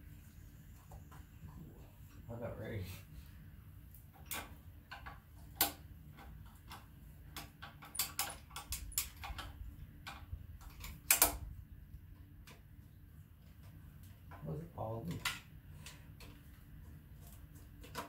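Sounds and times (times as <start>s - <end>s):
loud metallic clicks: 7.4s - 11.4s.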